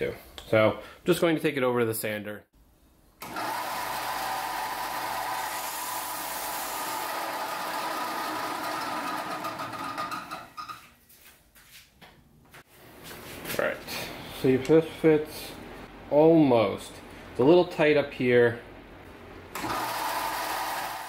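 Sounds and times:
power sander whining: 0:03.2 - 0:10.6.

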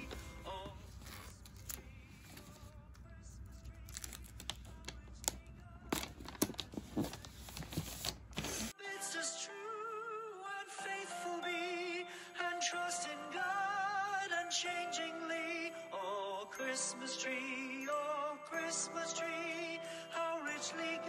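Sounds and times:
background music with singing: 0:00.0 - 0:07.8, 0:08.7 - 0:21.0
tape being stuck down: 0:00.0 - 0:08.7
wrapping paper crinkling: 0:00.0 - 0:08.7.

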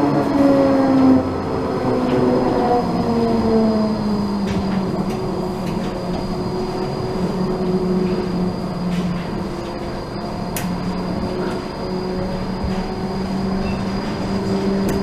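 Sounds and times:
tram motor whine: 0:00.0 - 0:15.0
wheels rumbling on rails: 0:00.0 - 0:15.0.

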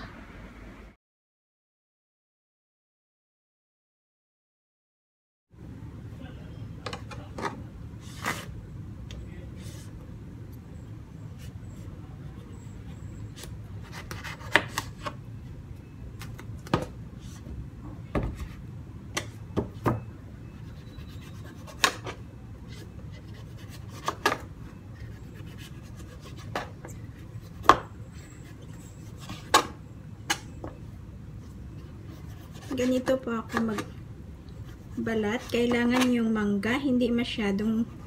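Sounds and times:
low steady hum: 0:05.6 - 0:38.0
knife scraping mango: 0:11.4 - 0:15.2, 0:20.4 - 0:29.7, 0:31.7 - 0:33.9.

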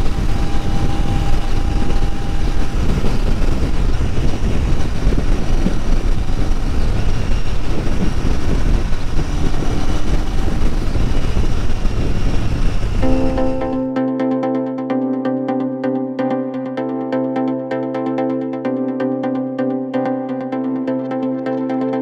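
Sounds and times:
loud wind: 0:00.0 - 0:14.0.

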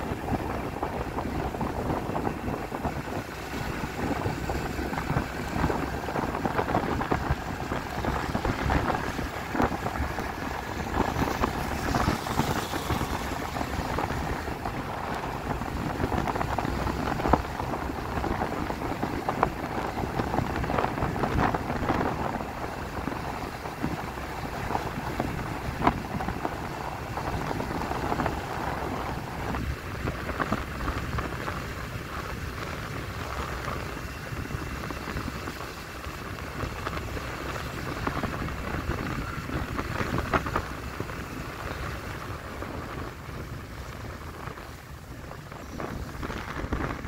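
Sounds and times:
wind rush: 0:00.0 - 0:47.0
tyre hiss on wet road: 0:07.4 - 0:14.4.

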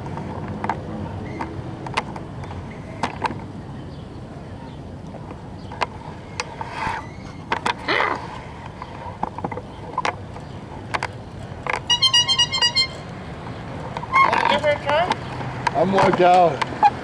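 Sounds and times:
wheels rumbling on asphalt: 0:00.0 - 0:17.0
pedal car frame clicking and knocking: 0:08.6 - 0:12.9, 0:13.5 - 0:17.0.

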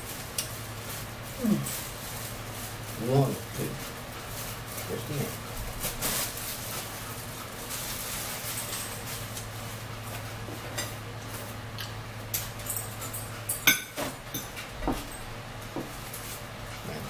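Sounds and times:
paper towel rustling: 0:00.0 - 0:11.6, 0:15.8 - 0:17.0.

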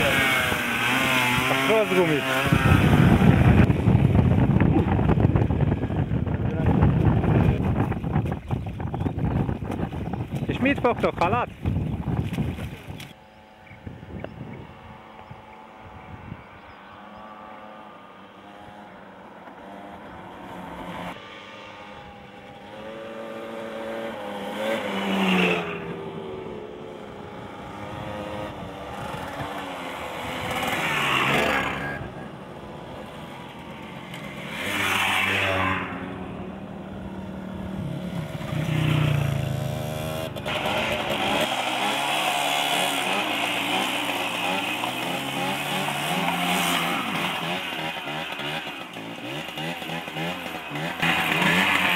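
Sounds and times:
motorcycles riding past: 0:00.0 - 0:07.6, 0:13.4 - 0:51.9
close engine running: 0:37.0 - 0:51.9.

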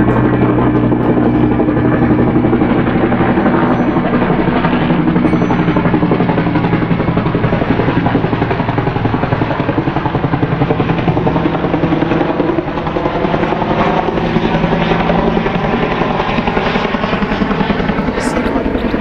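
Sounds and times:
helicopter rotor blade slap: 0:00.0 - 0:19.0.

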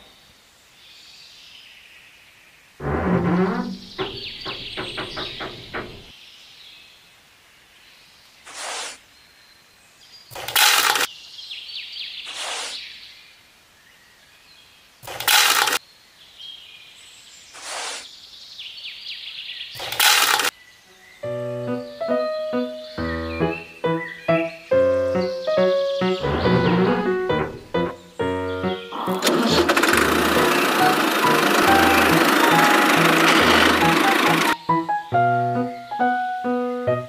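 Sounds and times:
faint bird chirps: 0:20.6 - 0:27.1
beans rattling into hopper: 0:29.0 - 0:34.6.

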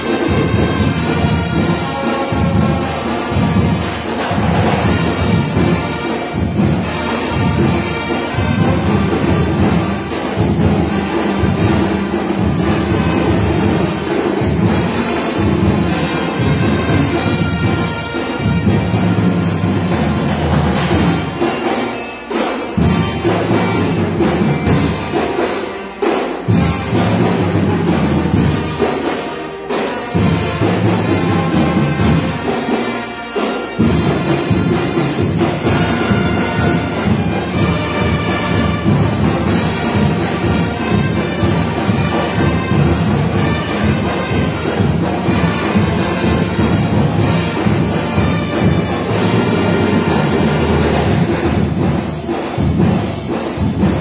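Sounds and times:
marching band playing: 0:00.0 - 0:54.0.

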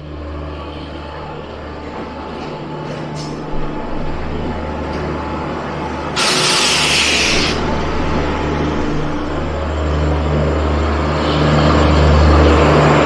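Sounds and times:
electric locomotive hum and rumble: 0:00.0 - 0:13.0
loud hiss: 0:06.2 - 0:07.8.

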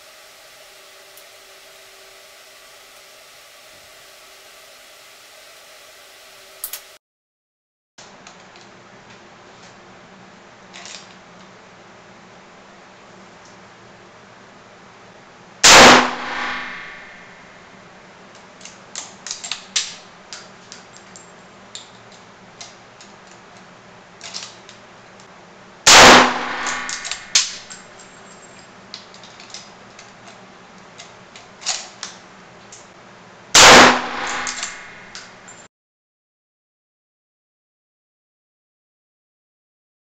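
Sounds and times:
rifle shots ringing: 0:15.6 - 0:17.5, 0:25.9 - 0:27.7, 0:33.6 - 0:35.1.

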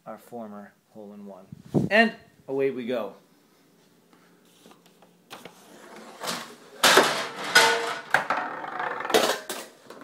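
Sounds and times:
marble rolling rattle: 0:07.2 - 0:09.5.

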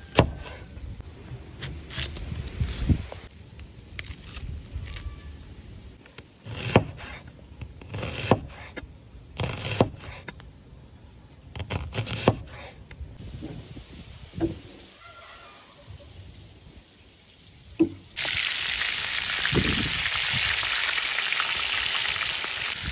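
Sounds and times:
onion skin crackling: 0:01.4 - 0:05.8
knife chopping on wooden board: 0:07.9 - 0:08.8, 0:09.4 - 0:10.2, 0:11.7 - 0:12.6.

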